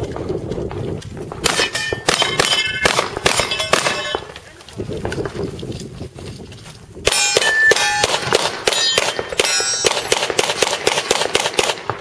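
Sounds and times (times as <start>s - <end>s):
rapid handgun fire: 1.4s - 4.2s, 7.1s - 12.0s
bullets ringing on steel targets: 1.5s - 4.4s, 7.1s - 10.8s.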